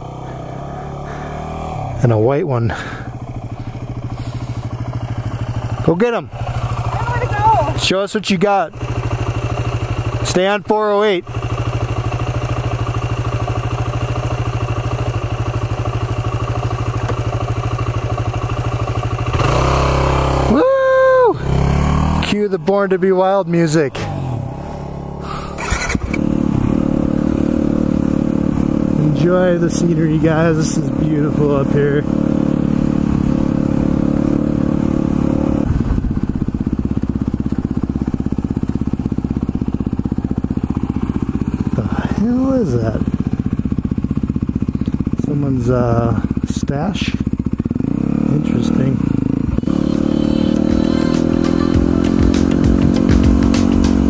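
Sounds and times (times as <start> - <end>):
dirt bike engine idling: 0.0 - 54.0.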